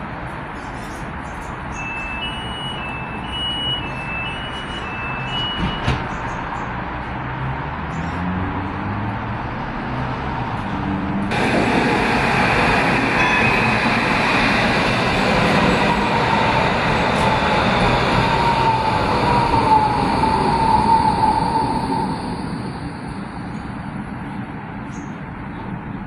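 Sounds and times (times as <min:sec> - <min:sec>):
tram rumble and hiss: 0:00.0 - 0:26.0
tram whine falling in pitch: 0:11.3 - 0:23.6.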